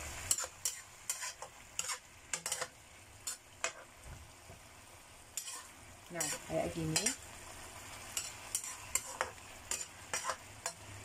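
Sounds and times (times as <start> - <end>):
metal spatula scraping a pan: 0.2 - 4.0, 5.4 - 7.2, 8.1 - 10.8.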